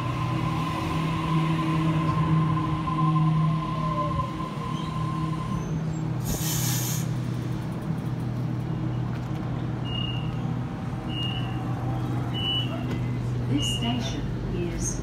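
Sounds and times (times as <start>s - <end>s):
train equipment humming: 0.0s - 15.0s
air release hiss: 6.2s - 7.1s.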